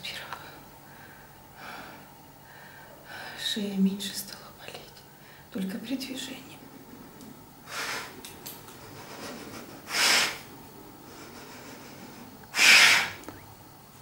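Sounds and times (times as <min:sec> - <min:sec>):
woman breathing forcefully: 0:00.8 - 0:03.4.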